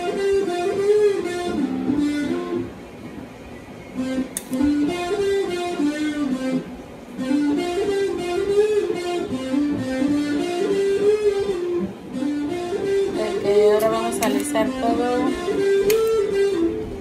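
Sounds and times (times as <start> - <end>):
electric guitar melody: 0.0 - 17.0.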